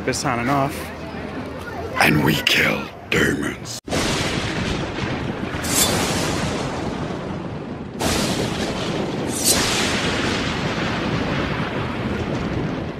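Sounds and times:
sudden hits: 3.9 - 11.8
rushing noise: 5.4 - 11.2.

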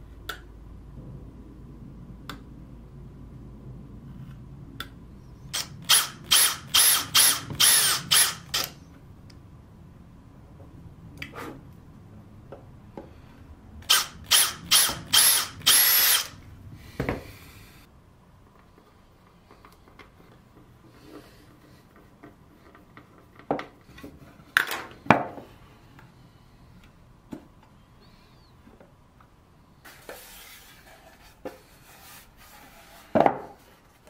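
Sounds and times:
cordless drill bursts into wood: 5.6 - 8.8, 13.9 - 16.4.

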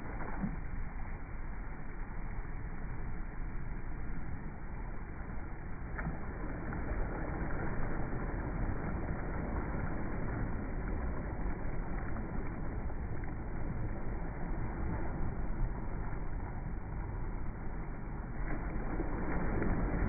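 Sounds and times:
small waves washing over sand: 4.4 - 20.0.

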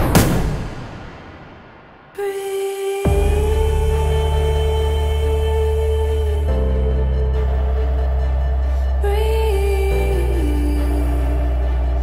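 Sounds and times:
deep bass drone: 3.1 - 12.0.

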